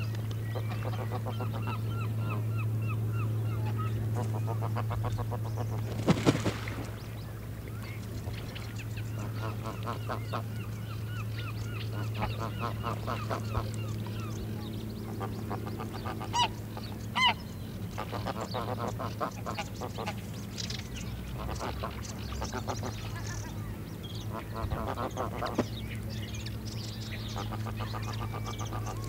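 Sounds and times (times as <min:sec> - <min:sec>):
steady low hum: 0:00.0 - 0:29.0
geese calling: 0:09.1 - 0:14.3, 0:15.0 - 0:20.2
geese honking: 0:15.0 - 0:17.4.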